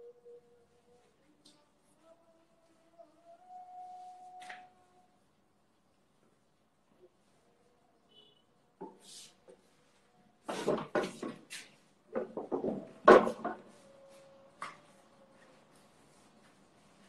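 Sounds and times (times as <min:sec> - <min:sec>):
knocks and bumps of furniture: 0:10.5 - 0:11.5, 0:12.1 - 0:13.6.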